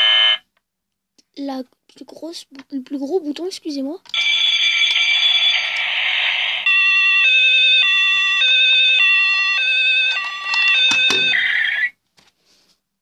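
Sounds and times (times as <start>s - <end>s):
toy fire engine siren: 4.2s - 12.0s
knock: 10.8s - 11.4s.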